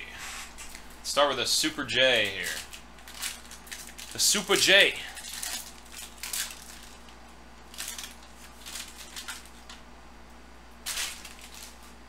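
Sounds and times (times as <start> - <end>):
cards rustling: 0.6 - 9.8, 10.8 - 12.0
foil wrapper tearing and crinkling: 2.1 - 9.8, 10.8 - 12.0.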